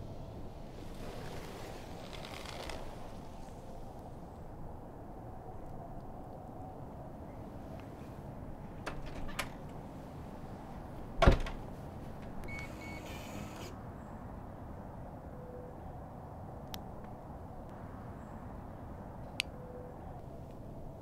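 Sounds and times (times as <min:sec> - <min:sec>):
keypad lock beeping: 0:12.5 - 0:13.0.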